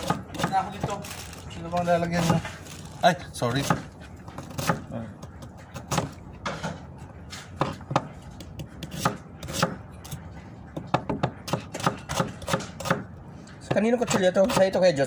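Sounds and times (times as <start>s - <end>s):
knife chopping on cutting board: 0.0s - 1.0s, 3.6s - 6.2s, 7.5s - 10.2s, 10.8s - 13.1s.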